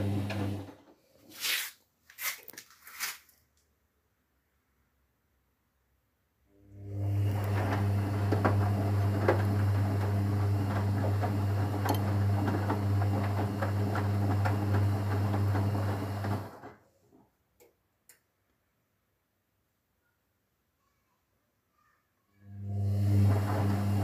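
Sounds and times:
washing machine drum tumbling: 0.0s - 0.8s, 7.0s - 16.7s, 23.2s - 24.0s.

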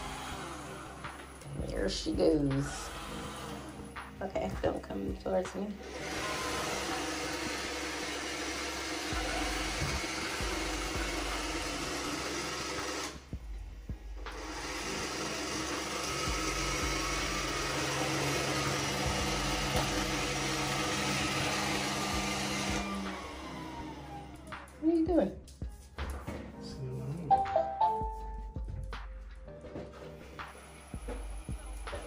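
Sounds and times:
robot vacuum whirring: 5.8s - 13.2s, 14.4s - 24.5s.

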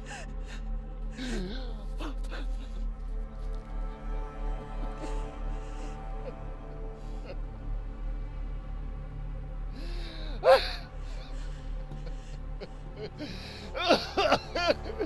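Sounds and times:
person gasping and whimpering: 0.0s - 2.9s, 9.8s - 15.0s.

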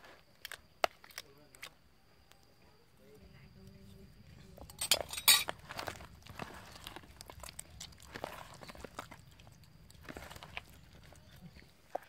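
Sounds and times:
wet squelching of fish: 5.5s - 12.0s.

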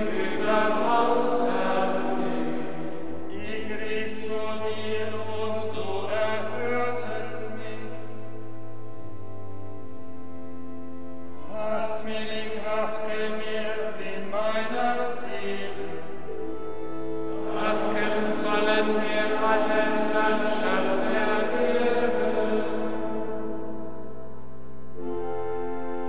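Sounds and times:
monks' choir chanting: 0.0s - 8.0s, 17.3s - 23.9s
pipe organ sustained notes: 0.0s - 26.0s.

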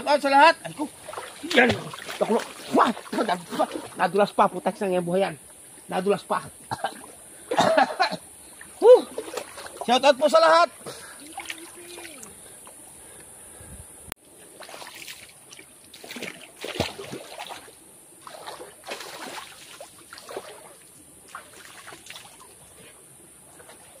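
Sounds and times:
water splashing: 0.5s - 4.4s, 8.4s - 12.6s, 14.5s - 22.8s.

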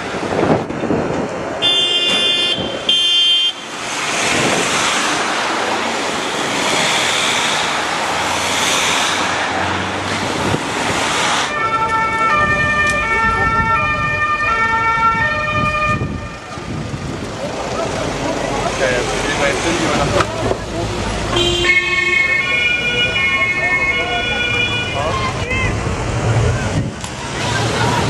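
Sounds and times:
vehicle horn blasts: 1.6s - 3.6s, 21.3s - 25.0s
steady rushing noise: 3.6s - 11.6s
two-tone police siren: 11.5s - 16.3s.

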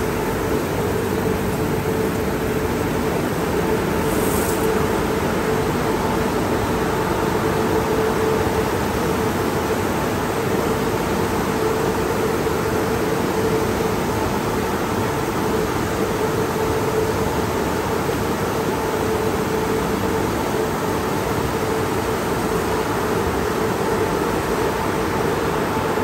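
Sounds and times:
machine hum: 0.0s - 26.0s
water spraying hiss: 3.9s - 5.1s.

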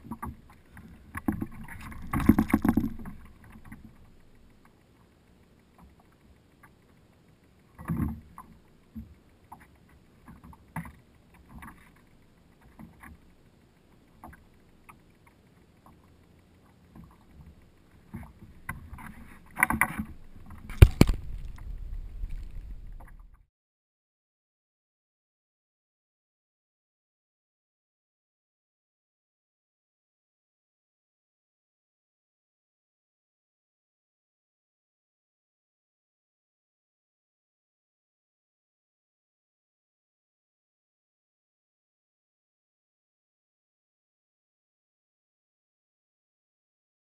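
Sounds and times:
gear knocking and rustling on kayak: 0.0s - 5.1s, 5.8s - 23.4s.

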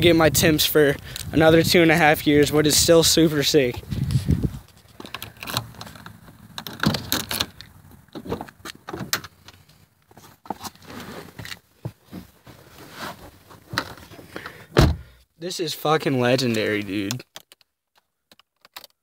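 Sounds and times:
car door opening: 4.9s - 9.4s, 13.7s - 15.1s.

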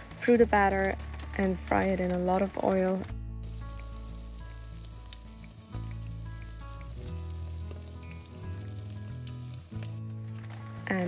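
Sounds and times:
soft background music: 0.0s - 11.0s
fish deep-frying in oil: 3.4s - 10.0s.

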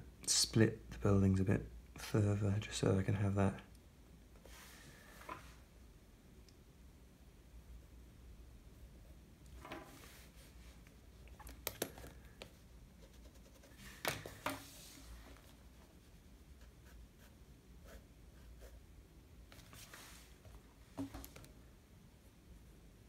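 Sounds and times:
sketchbook sliding on wooden desk: 4.5s - 5.6s, 9.6s - 10.4s, 13.8s - 15.5s
pencil scratching on paper: 13.0s - 14.7s, 15.4s - 18.8s.

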